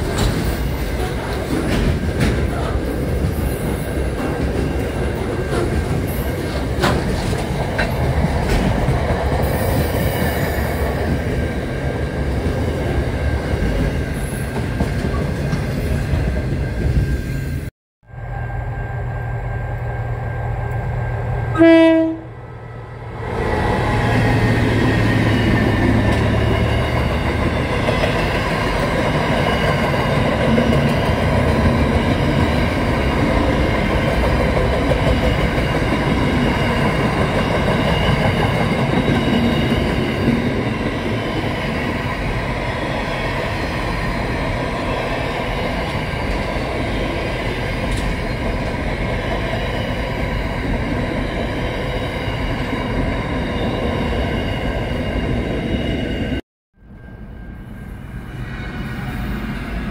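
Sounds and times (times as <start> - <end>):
freight train rumbling past: 0.0 - 59.9
train horn blast: 21.5 - 22.4.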